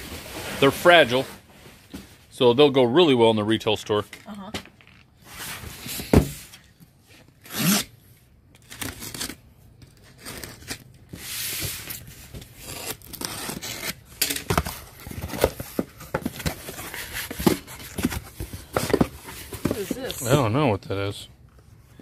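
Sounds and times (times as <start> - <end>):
cardboard box thumping on table: 6.0 - 6.4
tape tearing: 7.3 - 20.2
utility knife slitting tape: 7.4 - 7.9, 8.6 - 9.4
cardboard scraping: 10.0 - 20.4.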